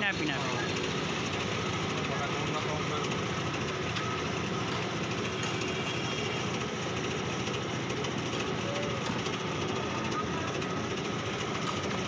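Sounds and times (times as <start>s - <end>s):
steady mechanical running noise: 0.0s - 12.0s.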